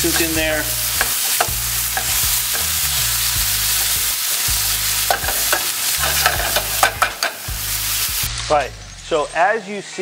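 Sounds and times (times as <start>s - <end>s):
spoon scraping a pan: 0.0s - 7.5s
food sizzling in a skillet: 0.0s - 10.0s.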